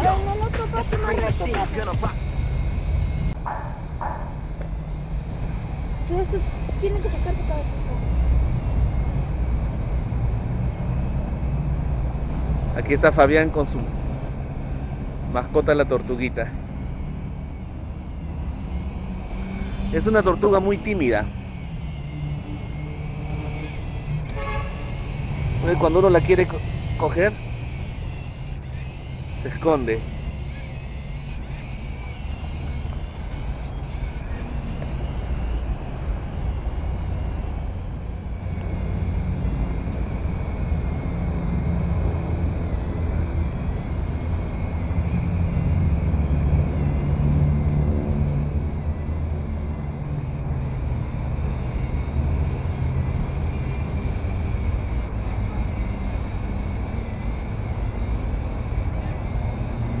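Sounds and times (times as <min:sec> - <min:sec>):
low outdoor background rumble: 0:00.0 - 1:00.0.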